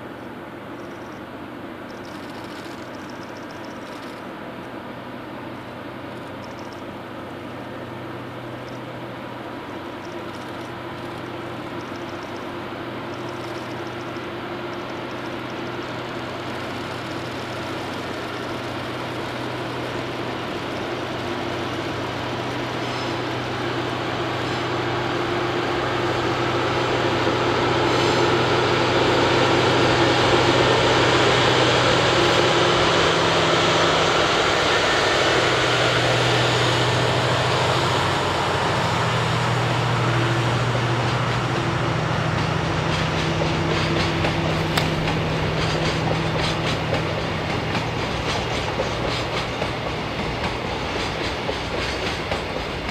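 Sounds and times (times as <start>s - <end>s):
locomotive engine hum: 0.0s - 52.9s
train wheels clattering over rail joints: 9.8s - 24.5s, 40.2s - 52.9s.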